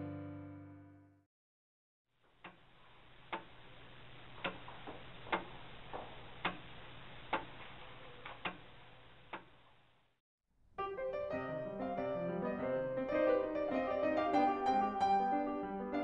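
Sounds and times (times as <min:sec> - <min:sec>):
mechanical clock ticking: 0:04.4 - 0:04.7.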